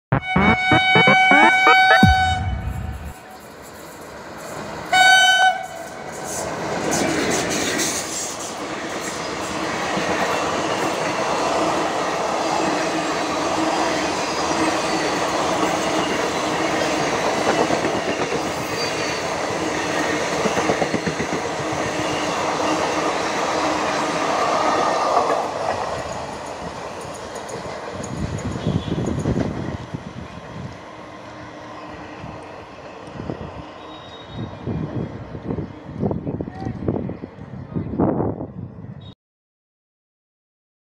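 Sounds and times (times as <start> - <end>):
locomotive horn blast: 0.1 - 3.4
train rushing and rattling: 2.1 - 37.4.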